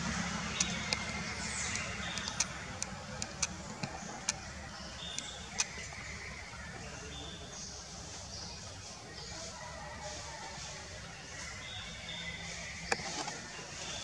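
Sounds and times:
sharp clicks: 0.5 - 6.0.

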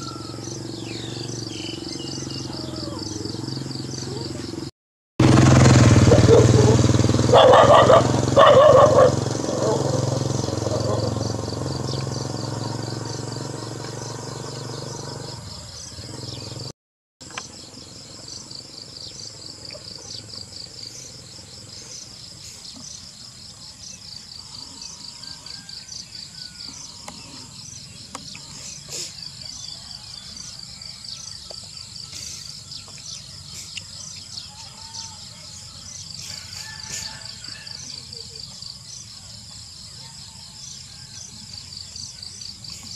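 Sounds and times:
faint bird chirps: 0.0 - 4.7
small motorcycle engine: 0.0 - 42.9.

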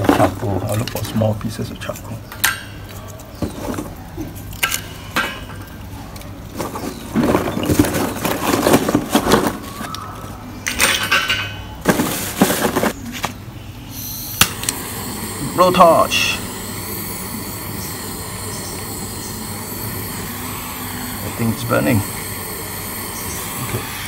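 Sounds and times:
charcoal lumps clinking: 0.0 - 10.0, 10.7 - 13.3, 14.4 - 24.0
plastic bag rustling: 6.3 - 9.9, 11.8 - 13.1.

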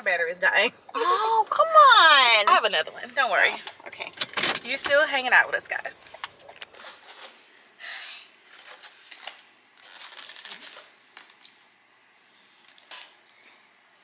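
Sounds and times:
paper and foam box crinkling: 6.0 - 7.4, 8.5 - 11.5.

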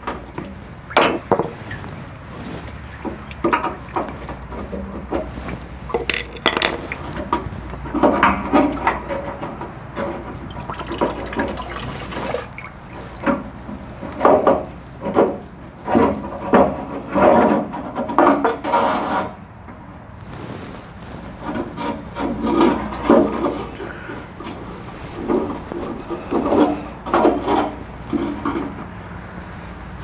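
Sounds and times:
metal scraping and knocking: 0.0 - 2.1, 2.7 - 19.4, 21.3 - 29.1
gasoline sloshing in tank: 0.0 - 17.6.

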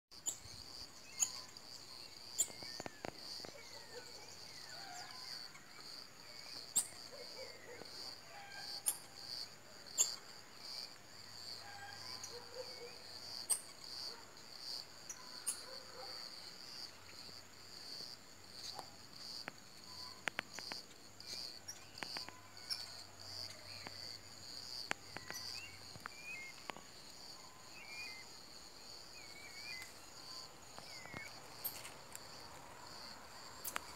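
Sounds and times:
high insect chorus: 0.2 - 33.9
marmoset chirps: 1.1 - 1.5.

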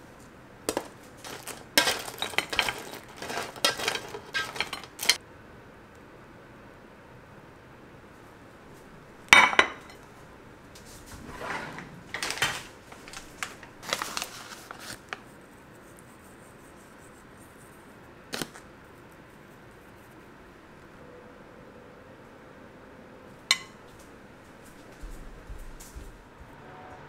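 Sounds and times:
dishes and utensils clinking: 0.7 - 5.2, 9.3 - 10.0, 11.1 - 13.7, 23.5 - 23.8
ceramic plate clattering on counter: 9.4 - 10.0.

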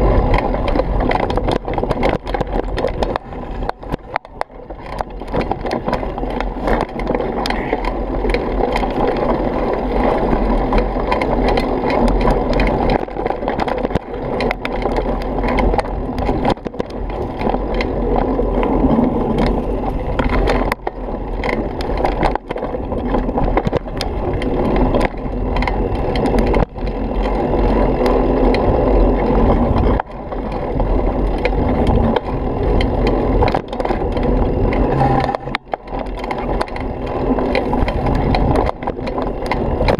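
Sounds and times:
bike rattling: 0.0 - 39.9
tyres rumbling on dirt and gravel: 0.0 - 39.9.

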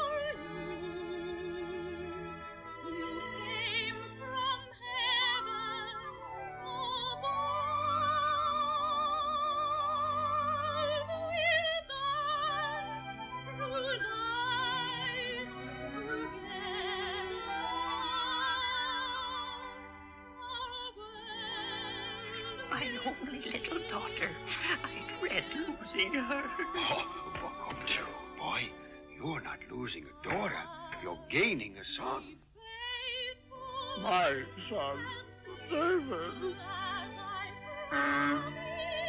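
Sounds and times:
operatic orchestral film score: 0.0 - 32.4, 33.4 - 39.0.

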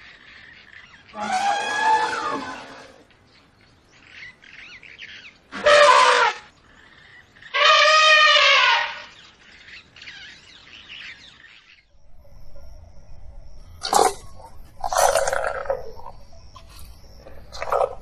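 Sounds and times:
elephant trumpeting: 1.1 - 3.0, 5.5 - 6.5, 7.5 - 9.1.

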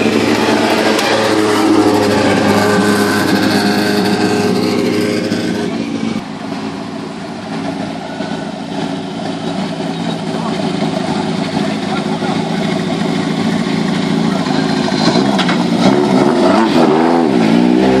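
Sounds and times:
race car engine driving past: 0.0 - 6.2.

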